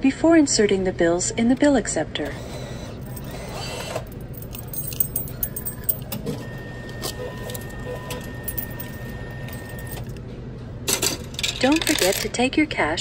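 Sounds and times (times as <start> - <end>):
cash machine clicking and running: 2.2 - 10.2, 10.9 - 12.5.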